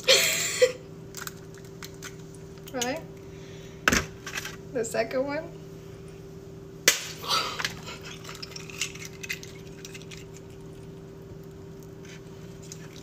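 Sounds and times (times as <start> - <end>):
egg shell cracking: 1.1 - 2.9, 6.9 - 13.0.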